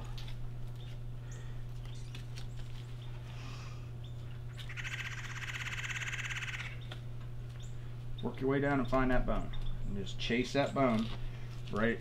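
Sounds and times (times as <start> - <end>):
steady low hum: 0.0 - 12.0
songbird trilling: 4.0 - 7.0.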